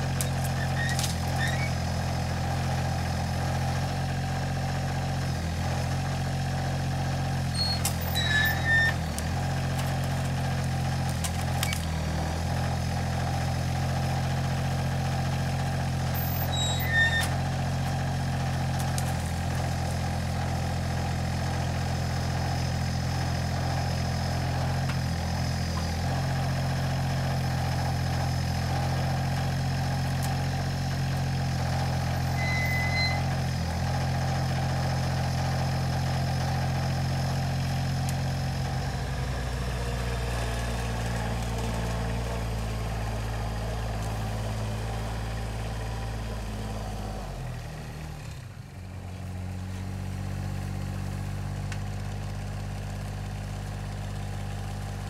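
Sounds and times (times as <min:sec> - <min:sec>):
diesel engine running: 0:00.0 - 0:55.0
brief high squeaks: 0:00.2 - 0:01.8, 0:07.5 - 0:09.1, 0:16.1 - 0:17.4, 0:32.1 - 0:33.4.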